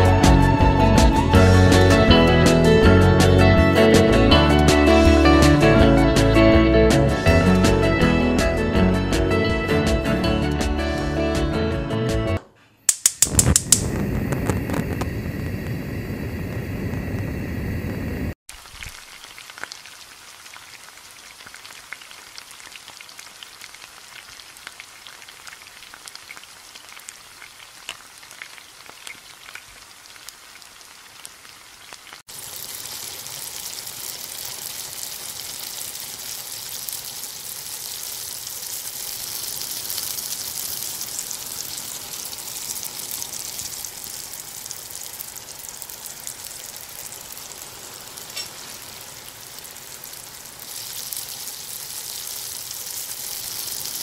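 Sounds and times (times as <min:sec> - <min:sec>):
light crackling: 0:12.9 - 0:17.4, 0:32.1 - 0:54.0
chicken deep-frying in oil: 0:12.9 - 0:54.0.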